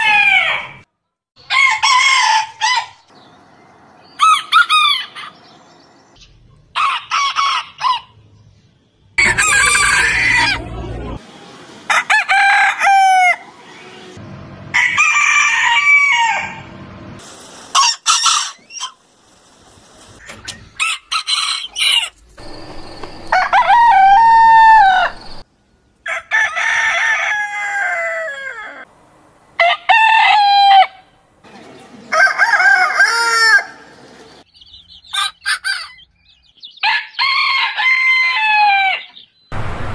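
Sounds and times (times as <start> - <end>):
roosters crowing: 0.0 - 0.8, 1.4 - 3.2, 4.0 - 5.8, 6.7 - 8.2, 9.2 - 11.2, 11.9 - 16.7, 20.7 - 25.4, 26.0 - 28.9, 29.6 - 31.2, 32.0 - 34.1, 35.0 - 39.2.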